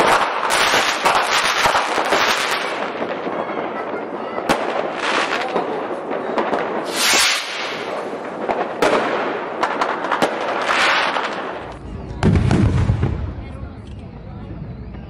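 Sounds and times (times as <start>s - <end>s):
fireworks crackling and banging: 0.0s - 14.0s
deep firework boom: 2.7s - 13.8s.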